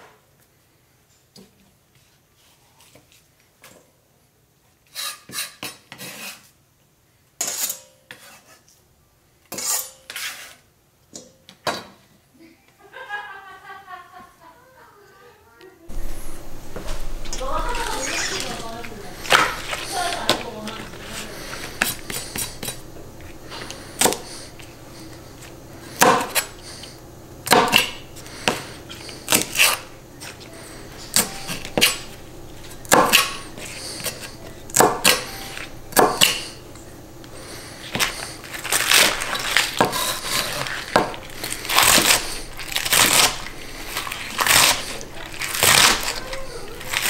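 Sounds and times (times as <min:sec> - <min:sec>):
knife chopping on plastic board: 0:21.5 - 0:22.8, 0:23.5 - 0:24.3, 0:26.0 - 0:26.5, 0:27.4 - 0:28.7, 0:31.1 - 0:32.1, 0:32.9 - 0:36.5, 0:39.0 - 0:43.3.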